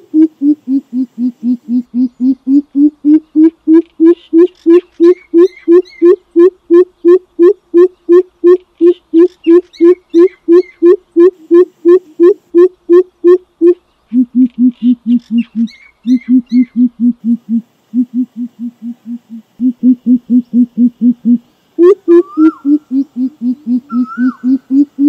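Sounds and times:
bird deep rapid hoots: 0.0s - 25.0s
faint rising bird whistle: 14.8s - 25.0s.

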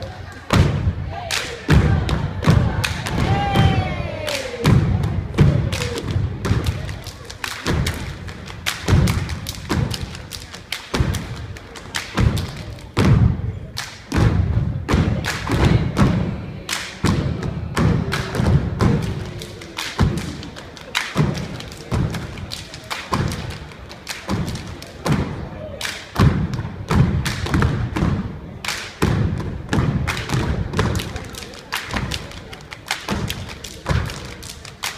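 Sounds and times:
dancers' thumps and smacks: 4.6s - 13.4s, 14.0s - 16.3s, 17.0s - 25.4s, 26.2s - 32.3s, 32.9s - 34.9s.

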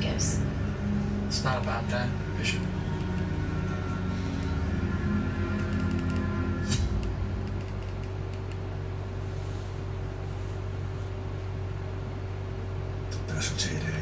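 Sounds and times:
low hum: 0.0s - 14.0s
room hiss: 6.4s - 14.0s.

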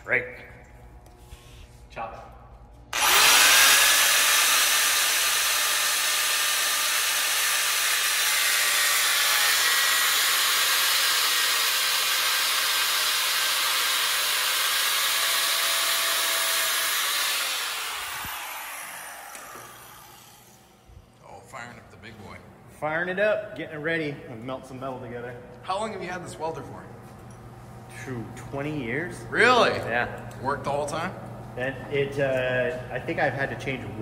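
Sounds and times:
power tool cutting metal: 2.9s - 20.8s.

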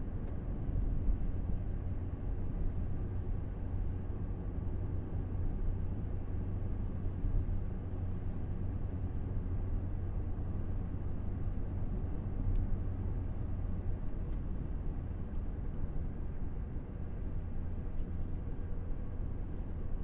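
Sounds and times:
road noise: 0.0s - 20.0s
vehicle engine rumble: 0.0s - 20.0s.

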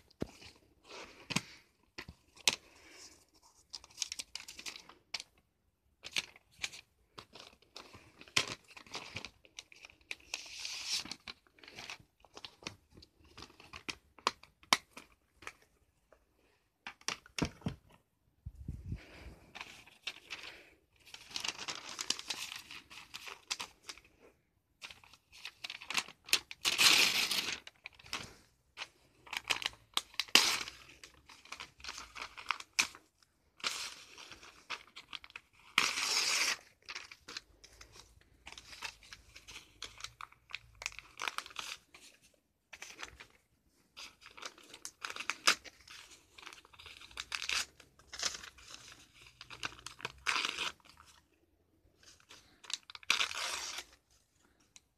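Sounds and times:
paper tearing and crumpling: 25.4s - 28.4s, 33.6s - 37.2s, 52.4s - 54.0s.

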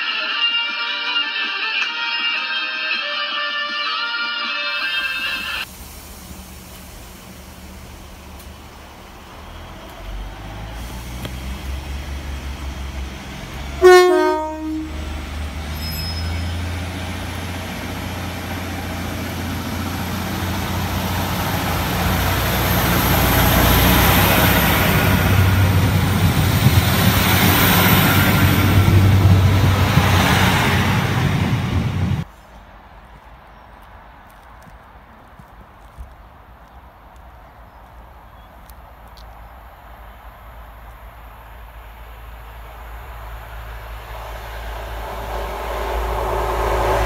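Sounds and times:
two-tone train horn: 0.0s - 5.6s, 13.6s - 15.2s
diesel train engine rumble: 4.8s - 32.3s, 36.6s - 47.0s
high whine: 41.6s - 47.0s.

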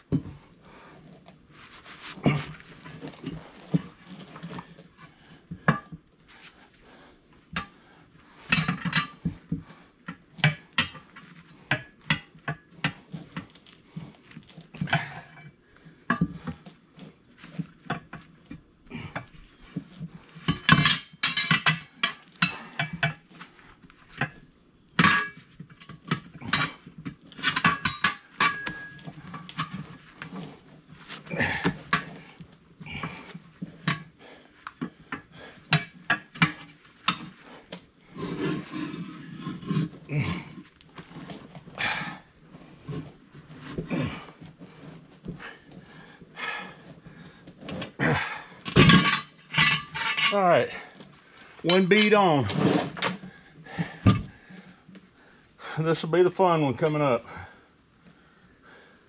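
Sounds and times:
tire irons clanking on wheel rim: 7.6s - 51.0s.

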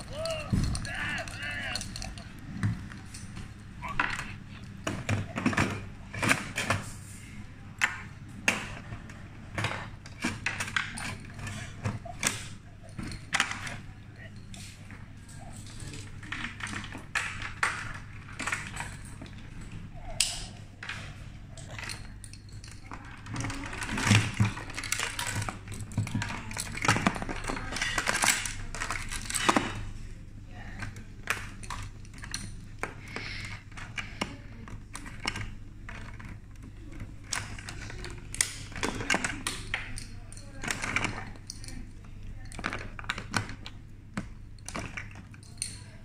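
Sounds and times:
plastic chain jangling: 0.0s - 4.3s
plastic parts clicking and rattling: 0.0s - 46.0s.

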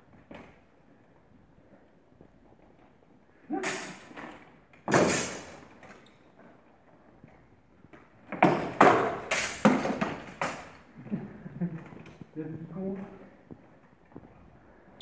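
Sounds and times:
armour clattering: 3.5s - 6.1s, 7.9s - 11.0s.

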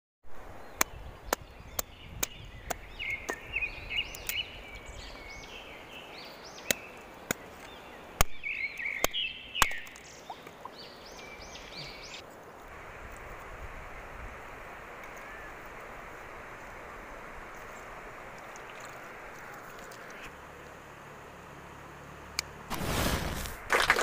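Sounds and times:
birds chirping: 0.4s - 12.6s
river water flowing: 4.2s - 22.7s.

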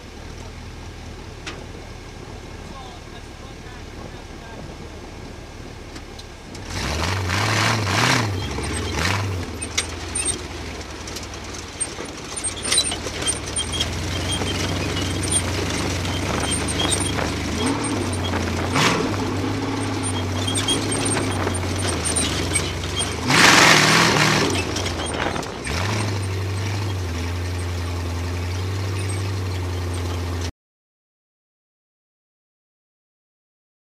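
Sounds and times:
buggy engine running: 0.0s - 30.5s
rushes of noise: 2.6s - 27.8s
chassis rattling and knocking: 8.0s - 30.5s.

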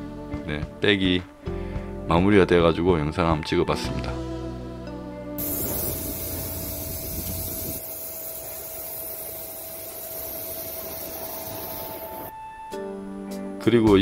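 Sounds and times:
steady hissing rushing noise: 5.4s - 12.3s.

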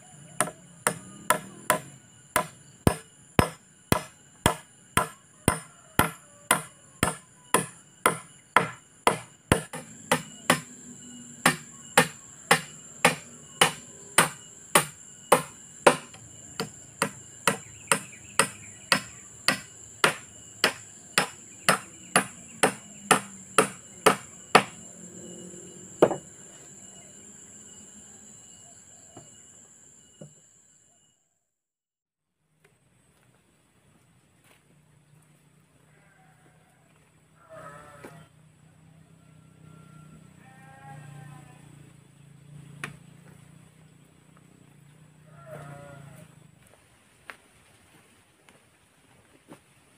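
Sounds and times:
high insect trill: 0.0s - 31.5s, 32.8s - 49.9s
blade chopping wooden log: 0.4s - 10.7s, 11.4s - 24.7s.

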